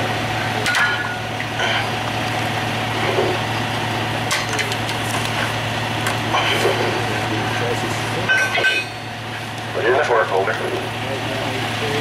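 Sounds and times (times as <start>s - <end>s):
diesel truck engine idling: 0.0s - 12.0s
metal clanks: 0.6s - 1.9s, 6.3s - 9.2s.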